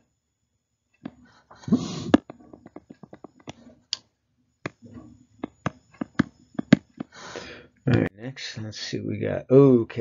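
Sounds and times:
stylus tapping on pen tablet: 0:05.4 - 0:07.2.

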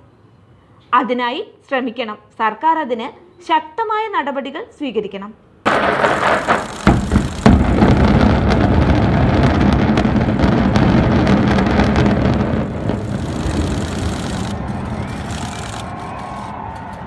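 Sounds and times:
distant building collapse rumble: 0:05.7 - 0:16.3
falling debris crackles: 0:05.7 - 0:16.4.

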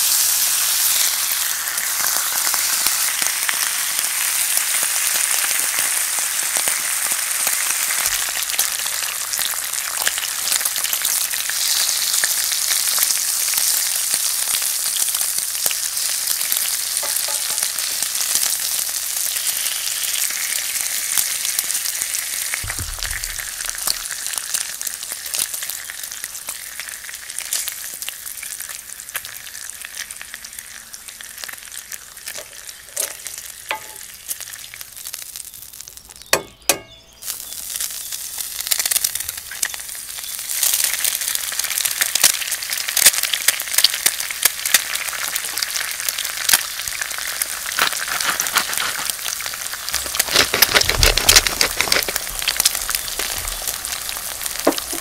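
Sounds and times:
bacon sizzling in frying pan: 0:00.0 - 0:55.0
low thump: 0:22.6 - 0:23.9.

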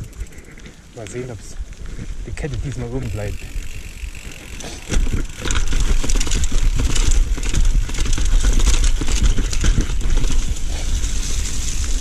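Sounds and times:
bike chain and frame rattling: 0:00.0 - 0:12.0
wind rumbling on microphone: 0:00.0 - 0:12.0.

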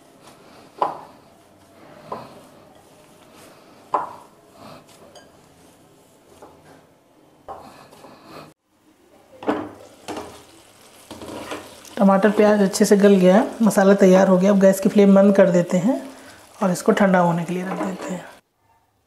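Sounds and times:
wooden spatula scraping pan: 0:11.1 - 0:13.6, 0:17.4 - 0:18.4.

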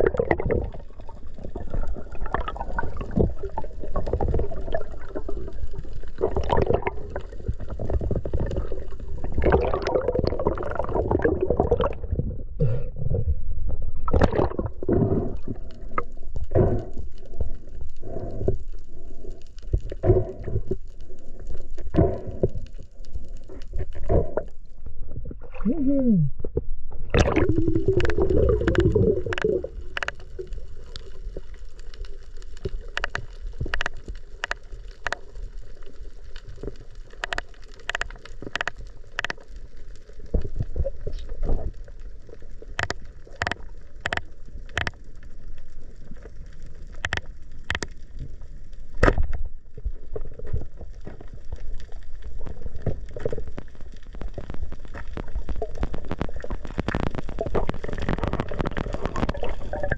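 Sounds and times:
muffled rush of water and bubbles: 0:00.0 - 0:59.9
sharp underwater clicks: 0:14.1 - 0:20.8, 0:27.0 - 0:40.4, 0:42.3 - 0:45.4, 0:46.8 - 0:48.2, 0:48.8 - 0:49.5, 0:52.3 - 0:59.9.

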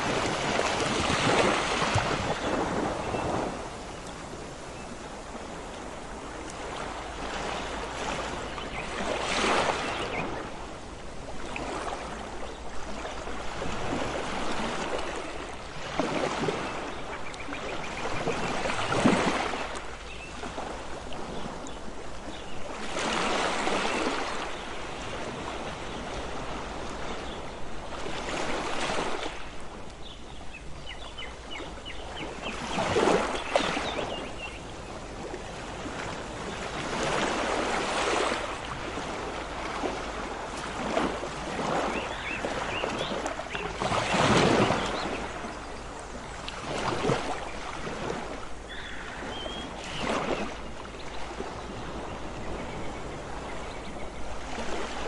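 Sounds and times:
waves breaking on a beach: 0:00.0 - 0:55.0.

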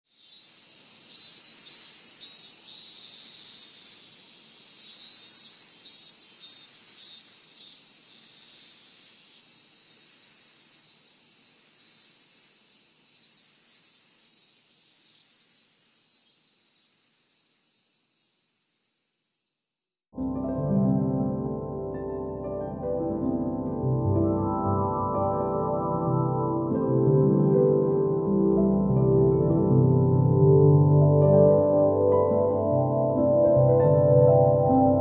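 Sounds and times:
cicadas buzzing in chorus: 0:00.0 - 0:20.0.

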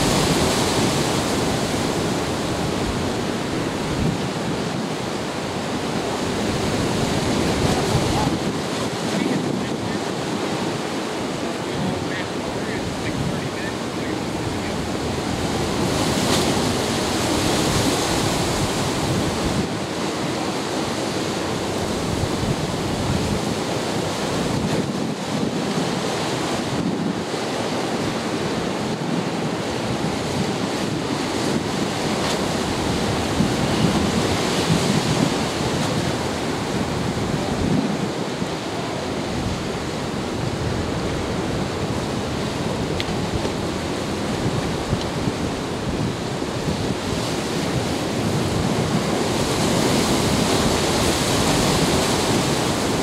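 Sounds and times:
surf breaking against rocks: 0:00.0 - 0:53.0
wind buffeting microphone: 0:00.0 - 0:53.0.

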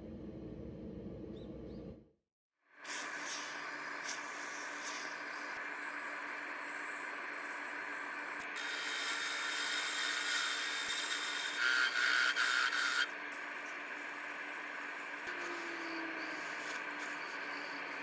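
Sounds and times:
wood lathe running: 0:05.1 - 0:18.0.

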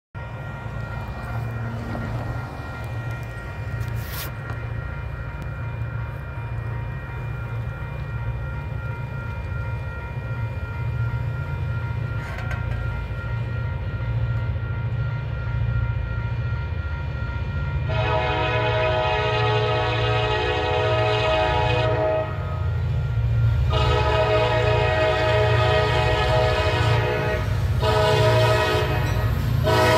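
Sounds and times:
crossing bell ringing: 0:00.2 - 0:29.9
diesel locomotive rumble: 0:00.2 - 0:29.9
train air horn: 0:03.8 - 0:04.5, 0:17.8 - 0:22.7, 0:23.7 - 0:29.9.

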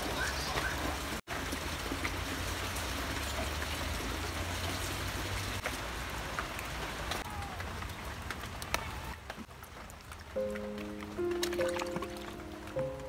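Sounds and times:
water running into plastic bucket: 0:09.2 - 0:12.8.

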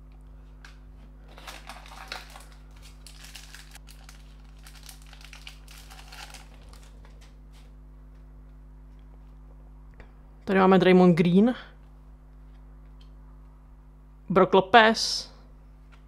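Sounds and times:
foil card pack tearing and crinkling: 0:01.2 - 0:07.4.

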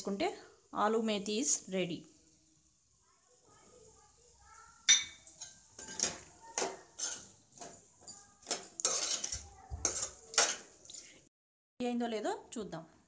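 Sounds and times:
spoon scraping metal pan: 0:04.9 - 0:11.2.

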